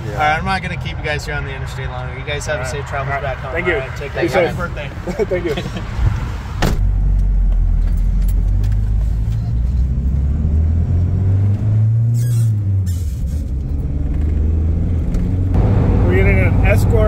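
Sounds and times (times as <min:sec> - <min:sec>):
pickup engine accelerating: 0:04.6 - 0:17.0.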